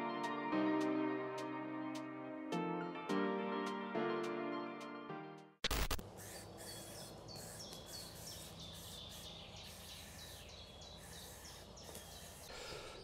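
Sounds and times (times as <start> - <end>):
bird chirping: 6.2 - 13.0.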